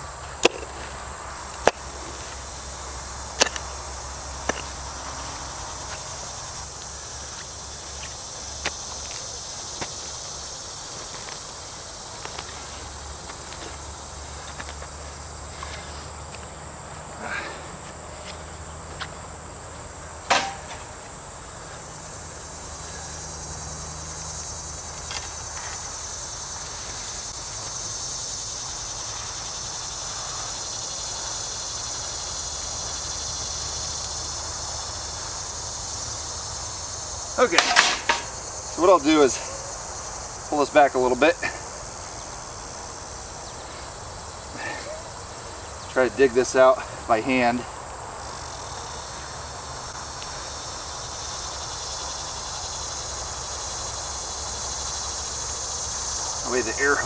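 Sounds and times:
insect chorus: 0:00.0 - 0:57.0.

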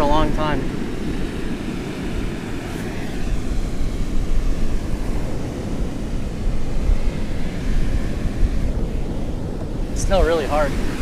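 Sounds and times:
ocean surf: 0:00.0 - 0:11.0
wind buffeting microphone: 0:00.0 - 0:11.0.

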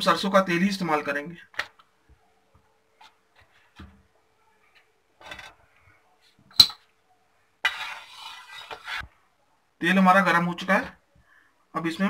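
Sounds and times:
spatula scraping through oil: 0:07.6 - 0:09.1.

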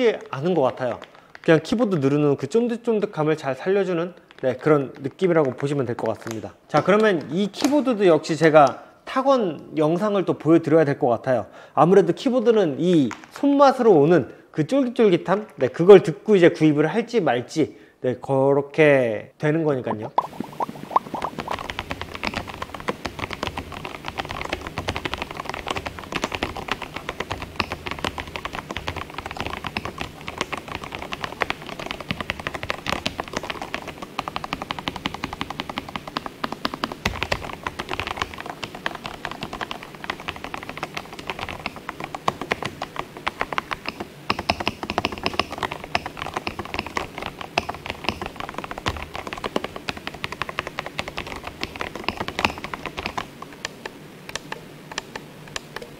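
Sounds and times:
mechanical keyboard typing: 0:20.3 - 0:55.9.

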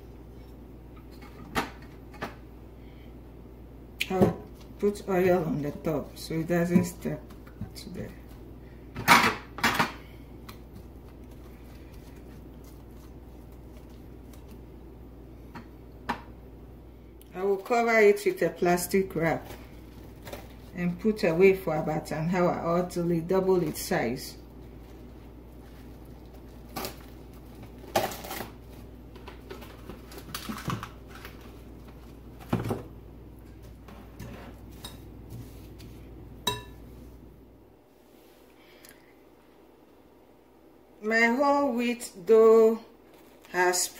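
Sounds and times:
low steady hum: 0:00.0 - 0:43.9
glass bowl knocking and clinking: 0:36.4 - 0:36.8.

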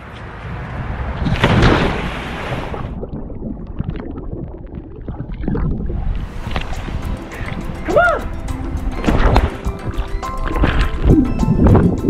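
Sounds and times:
big splash into pool: 0:01.2 - 0:03.0
muffled underwater bubbling: 0:02.8 - 0:06.2.

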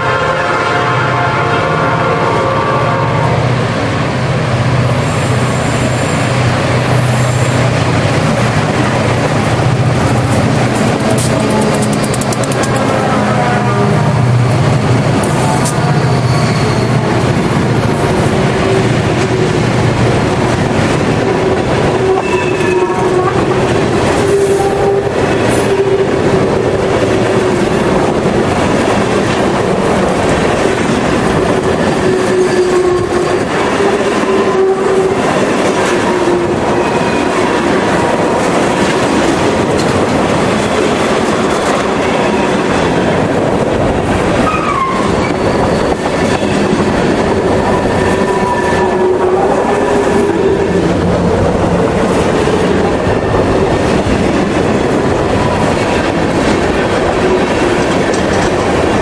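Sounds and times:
train wheels rumbling on rails: 0:00.0 - 0:59.0
clickety-clack over rail joints: 0:05.4 - 0:13.7, 0:14.3 - 0:59.0
wheel flanges squealing: 0:15.5 - 0:17.2.

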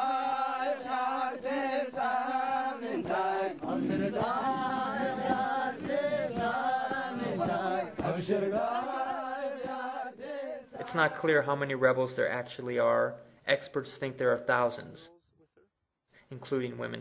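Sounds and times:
group chanting in unison: 0:00.0 - 0:11.4.

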